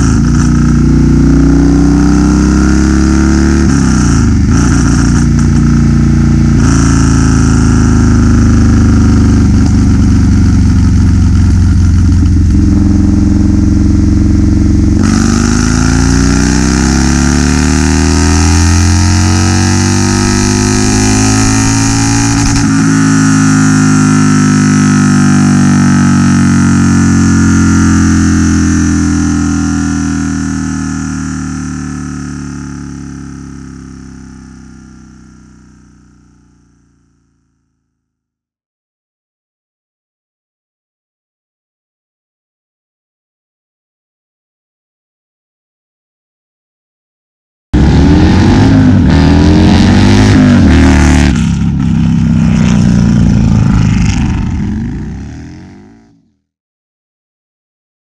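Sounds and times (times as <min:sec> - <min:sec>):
motorcycle engine revving on dyno: 0:00.0 - 0:36.4, 0:47.8 - 0:56.0.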